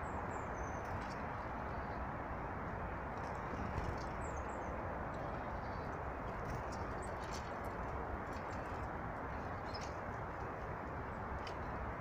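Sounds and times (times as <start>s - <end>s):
rushing outdoor background noise: 0.0s - 12.0s
small birds chirping: 3.3s - 10.1s.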